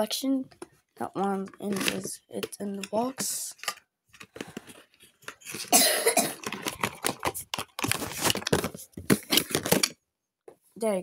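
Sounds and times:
cardboard and plastic rustling: 0:00.5 - 0:10.0
sharp clicks and crinkles: 0:06.3 - 0:10.0.

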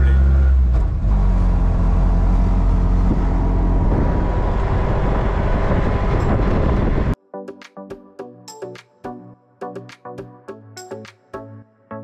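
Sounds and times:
auto-rickshaw engine running: 0:00.0 - 0:07.2.

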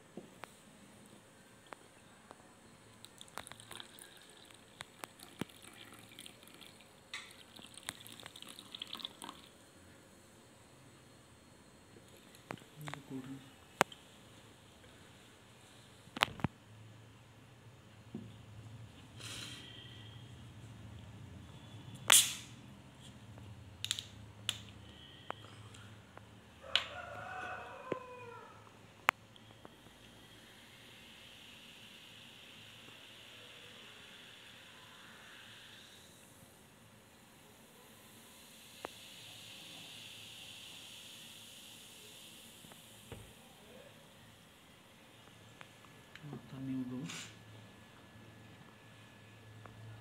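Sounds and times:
hot drink pouring into cup: 0:02.9 - 0:09.6
gas hissing from bottle: 0:19.2 - 0:20.2, 0:22.0 - 0:22.6, 0:29.8 - 0:43.5, 0:46.9 - 0:47.4.

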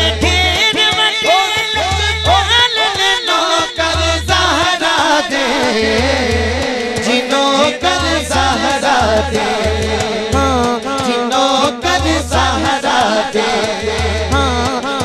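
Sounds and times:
man singing into microphone: 0:00.0 - 0:15.0
repeating low beat: 0:07.8 - 0:15.0.

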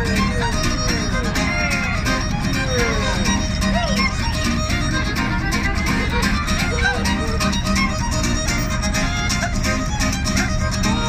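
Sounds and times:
fiddle melody: 0:00.0 - 0:11.0
strummed acoustic guitar: 0:00.0 - 0:11.0.

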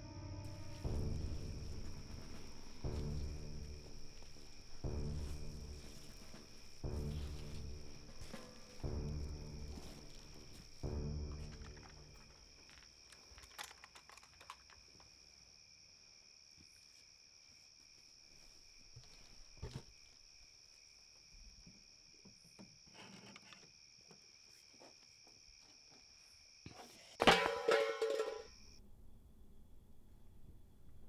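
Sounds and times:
soft rustles: 0:00.5 - 0:10.8.

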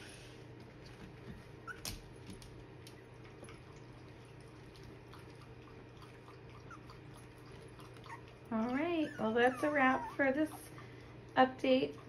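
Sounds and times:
low room hum: 0:00.0 - 0:12.0
tiny puppy squeaks: 0:01.6 - 0:01.9, 0:09.0 - 0:10.3
puppies shuffling: 0:07.2 - 0:11.9.

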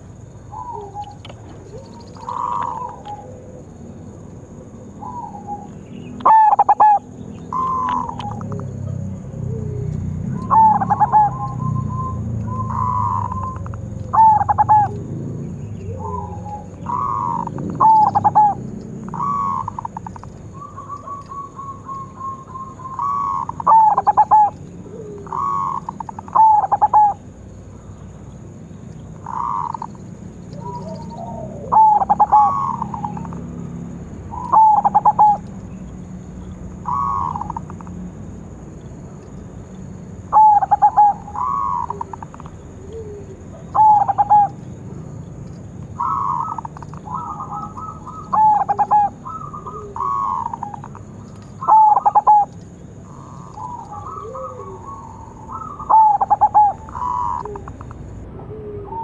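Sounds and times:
dove cooing: 0:00.0 - 0:27.6, 0:29.1 - 0:35.8, 0:36.4 - 0:38.0, 0:40.1 - 0:59.0.

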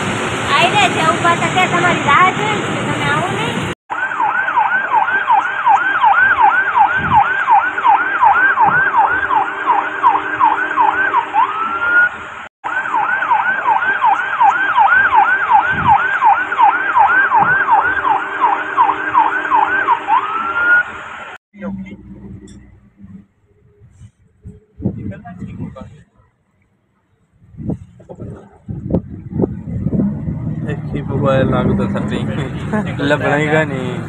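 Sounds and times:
electronic siren yelping: 0:03.9 - 0:23.8.

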